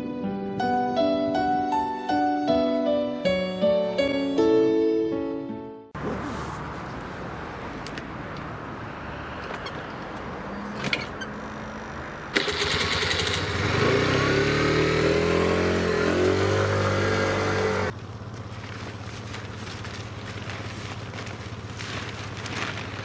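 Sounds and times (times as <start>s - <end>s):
scooter engine accelerating: 12.3s - 23.0s.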